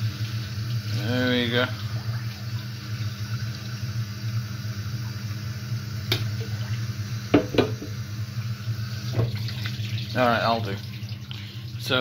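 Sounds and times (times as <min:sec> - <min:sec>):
steady low hum: 0:00.0 - 0:12.0
water sloshing in a saucepan: 0:00.0 - 0:12.0
pan knocking against sink: 0:07.3 - 0:08.0, 0:09.2 - 0:09.4.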